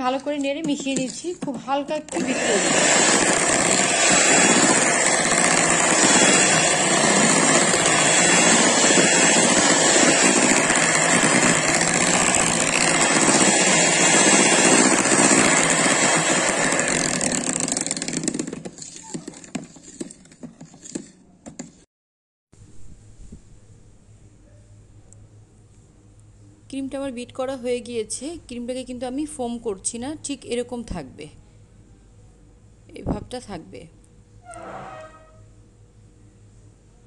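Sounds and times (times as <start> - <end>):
electric hand mixer running: 2.1 - 20.0.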